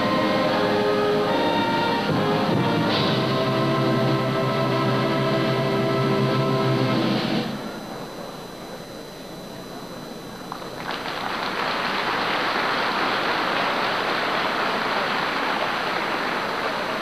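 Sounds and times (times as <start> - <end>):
audience applauding: 10.5 - 17.0.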